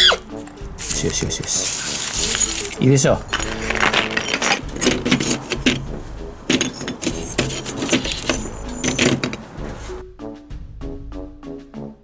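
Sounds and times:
plaster chunks clinking together: 0:00.8 - 0:09.5.

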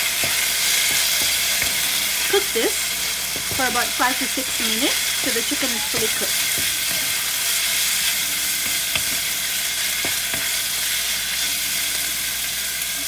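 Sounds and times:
chicken sizzling in hot oil: 0:00.0 - 0:13.0
wooden spatula scraping a wok: 0:00.2 - 0:09.3.

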